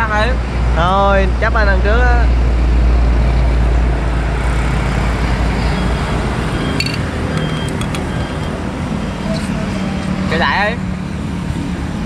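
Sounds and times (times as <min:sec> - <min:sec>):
heavy vehicle rumble: 0:00.0 - 0:12.0
steady traffic noise: 0:00.0 - 0:12.0
tableware clinking: 0:06.8 - 0:08.0.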